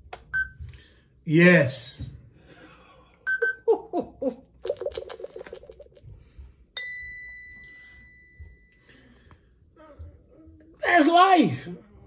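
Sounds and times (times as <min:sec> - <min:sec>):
bell-like ding: 0:06.8 - 0:08.8.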